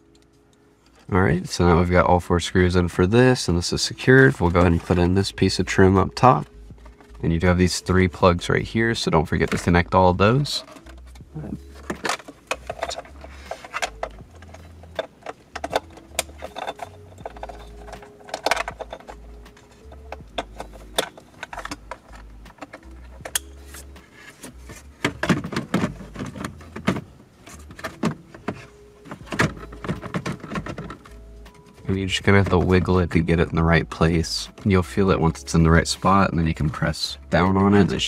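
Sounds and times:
plastic trim clicks and rattles: 11.8s - 23.5s.

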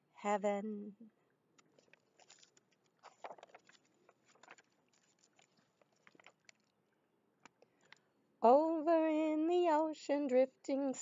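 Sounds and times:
book pages turning: 1.6s - 6.7s.

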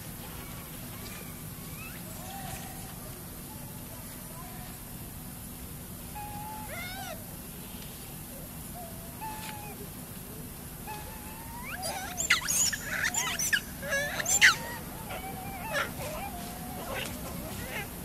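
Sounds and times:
macaques cooing: 6.2s - 7.2s, 10.8s - 18.0s
macaques squealing and screeching: 6.2s - 7.2s, 10.9s - 18.0s.

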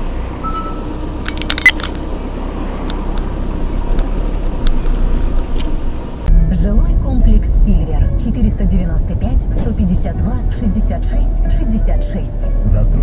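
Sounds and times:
car driving rumble: 0.0s - 13.0s.

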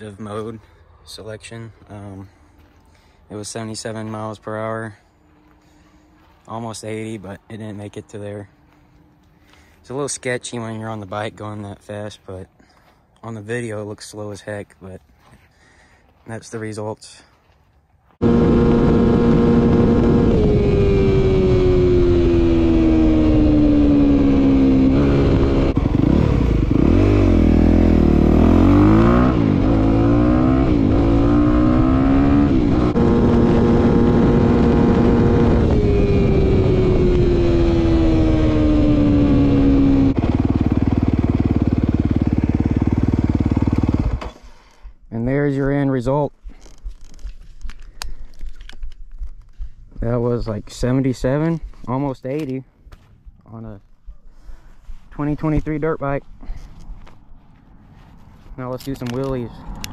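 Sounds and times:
dirt bike engine at high revs: 18.2s - 44.8s.

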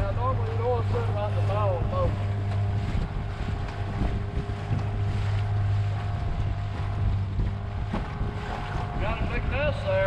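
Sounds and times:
boat motor humming: 0.0s - 10.0s
wind buffeting microphone: 0.0s - 10.0s.

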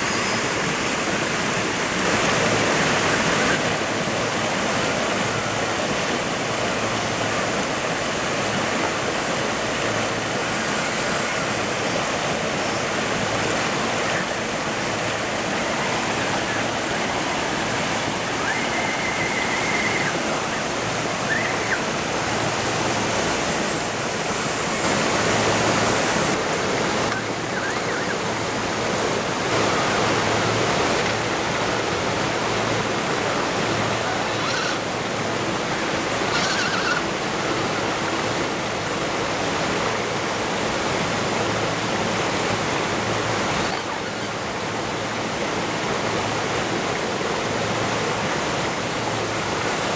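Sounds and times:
creek water rushing over rocks: 0.0s - 49.9s.

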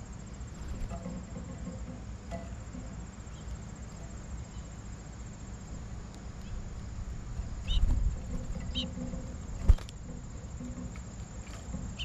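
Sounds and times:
high insect trill: 0.0s - 12.0s
high bird chirps: 7.6s - 7.9s, 8.6s - 9.0s.

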